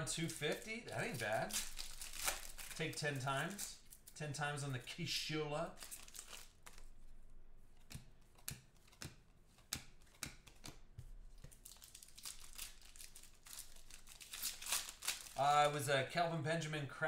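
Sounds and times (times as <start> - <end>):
plastic sleeves crinkling: 0.0 - 5.0, 5.6 - 7.2, 11.3 - 15.6.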